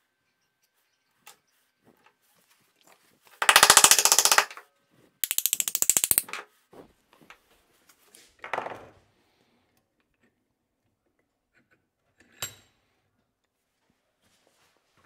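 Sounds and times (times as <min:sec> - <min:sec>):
rapid metallic clicking: 0:03.4 - 0:04.6, 0:05.2 - 0:06.3.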